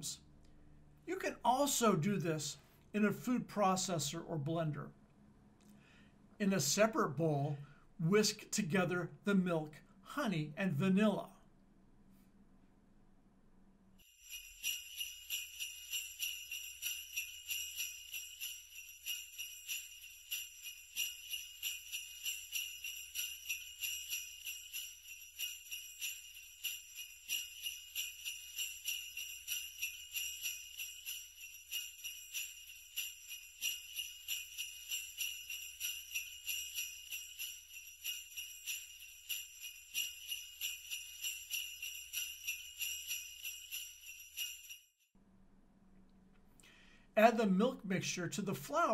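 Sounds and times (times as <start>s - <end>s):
sleigh bells jingling: 14.0s - 45.0s.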